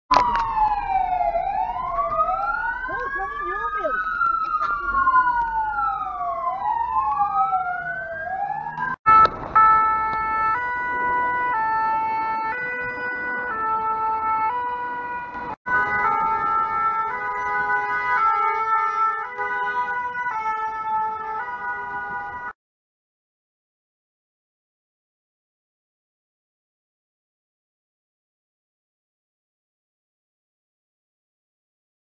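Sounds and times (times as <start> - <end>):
two-tone siren: 0.1 - 22.6
wailing siren: 0.1 - 22.6.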